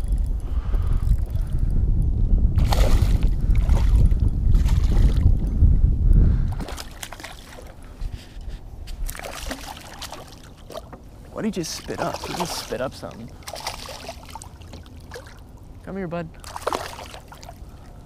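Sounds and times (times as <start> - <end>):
low rumble: 0.0 - 6.7
water sloshing: 6.6 - 15.8, 16.4 - 18.0
fish splashing at water surface: 9.0 - 10.9, 13.4 - 15.4, 16.4 - 17.6.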